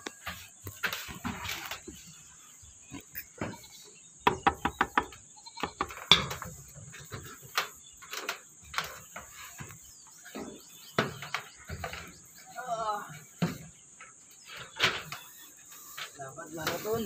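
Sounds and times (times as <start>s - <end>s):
steady high hiss: 0.0s - 17.0s
knocks on metal roof sheeting: 3.4s - 9.7s.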